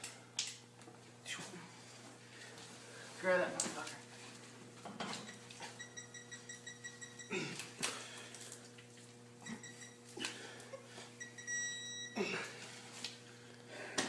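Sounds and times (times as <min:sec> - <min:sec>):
held beep: 0:05.2 - 0:07.4, 0:09.4 - 0:10.0, 0:11.2 - 0:12.2
short high beeps: 0:05.3 - 0:07.4, 0:09.4 - 0:10.0, 0:11.2 - 0:12.2.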